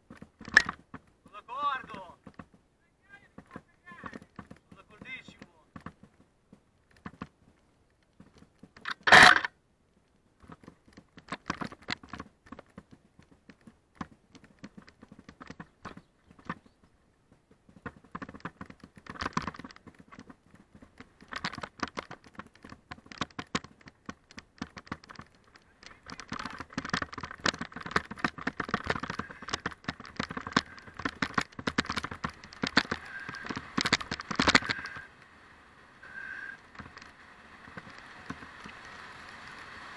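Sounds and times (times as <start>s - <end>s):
bike rattling over stones: 0.0s - 9.6s, 10.4s - 35.2s, 36.0s - 39.9s.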